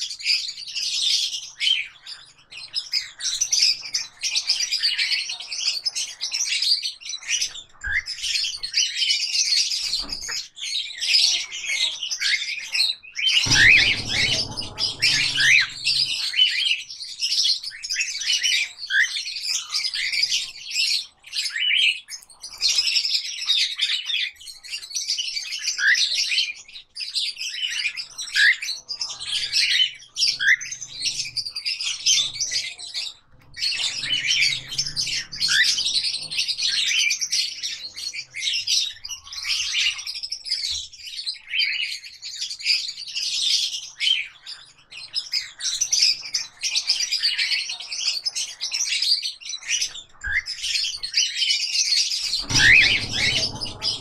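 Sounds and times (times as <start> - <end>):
short low rumble: 13.5 - 16.4, 52.4 - 54.0
parrots chirping and chattering: 52.4 - 54.0.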